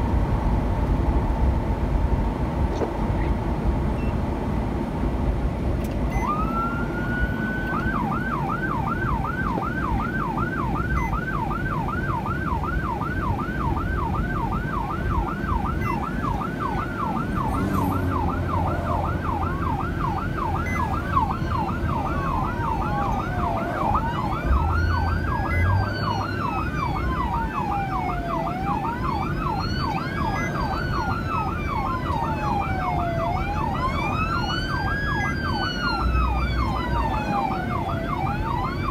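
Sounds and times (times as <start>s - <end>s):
car road noise: 0.0s - 38.9s
siren fast yelp: 6.1s - 38.9s
siren rising and falling wail: 6.1s - 38.9s.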